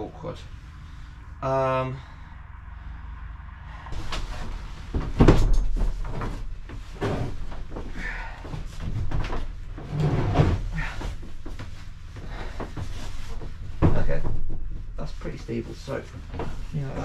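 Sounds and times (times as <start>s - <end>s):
seat scraping: 3.9s - 17.0s
seat knocking and thumping: 4.0s - 15.2s.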